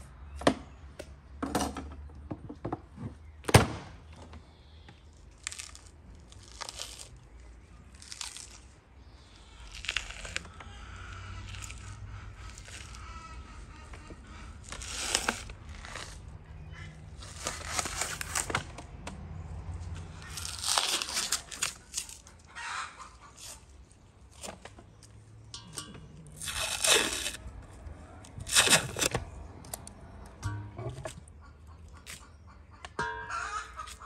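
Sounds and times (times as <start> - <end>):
membrane ripping off ribs: 5.4 - 13.1, 14.6 - 16.4, 17.2 - 18.7, 20.2 - 22.4, 25.8 - 29.3.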